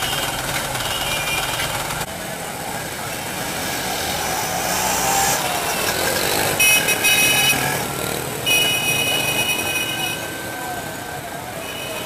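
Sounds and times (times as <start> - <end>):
bus engine running: 0.0 - 2.8
auto-rickshaw engine: 0.0 - 12.0
motorcycle engines: 0.0 - 12.0.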